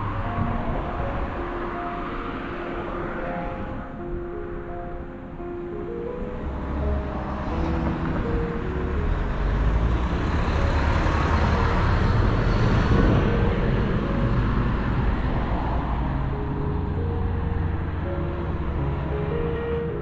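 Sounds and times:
vehicle passing by: 6.4 - 19.7.

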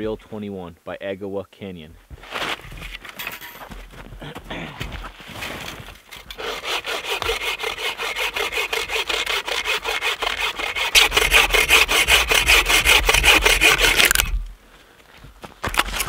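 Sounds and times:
bow saw cutting log: 6.3 - 14.4.

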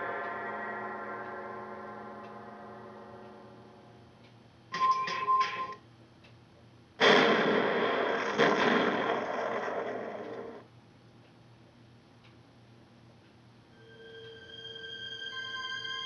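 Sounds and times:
ringing tone: 4.7 - 5.8
loud explosion sound effect: 7.0 - 10.6.

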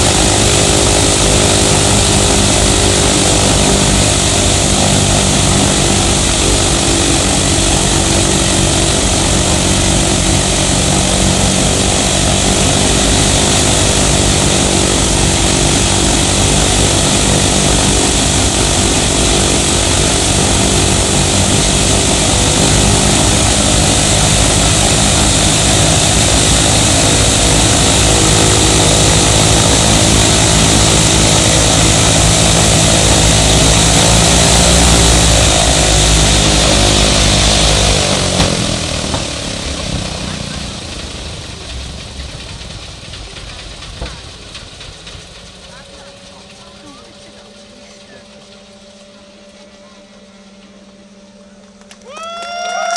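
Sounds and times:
radial piston engine running: 0.0 - 52.2.

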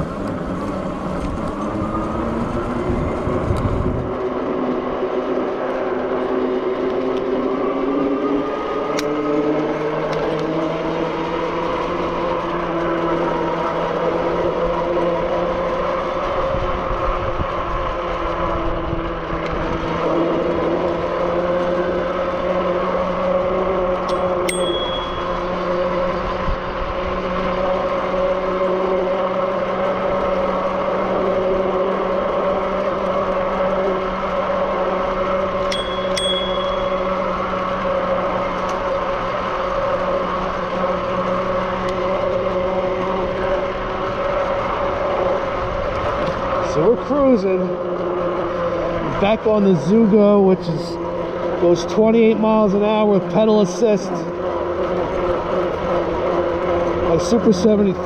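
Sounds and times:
rushing wind: 0.0 - 10.2, 13.3 - 22.0
electric motor whining: 0.0 - 58.0
wind and tyre noise: 0.0 - 58.0.

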